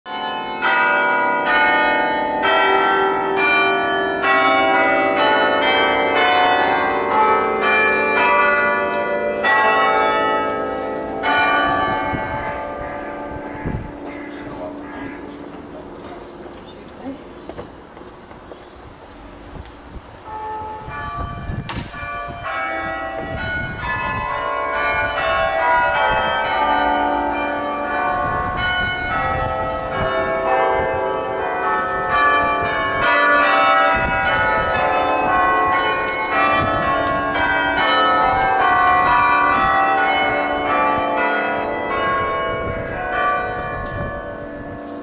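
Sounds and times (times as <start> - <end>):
carillon bells playing tune: 0.2 - 12.8.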